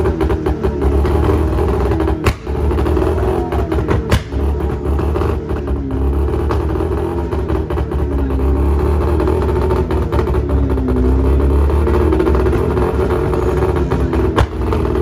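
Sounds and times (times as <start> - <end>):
car engine revving: 0.0 - 15.0
deep engine rumble: 0.0 - 15.0
sharp pops: 2.2 - 2.8, 3.9 - 4.5.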